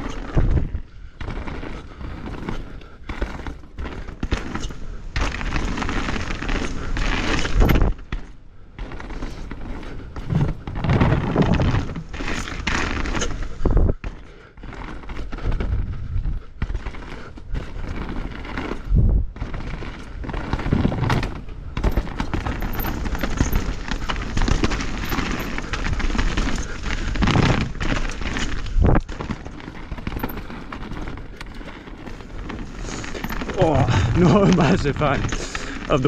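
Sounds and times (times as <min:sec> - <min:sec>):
bike rattling over roots and rocks: 0:00.0 - 0:36.0
bike tyres on dirt trail: 0:00.0 - 0:36.0
bike hitting hard thuds: 0:20.3 - 0:31.1.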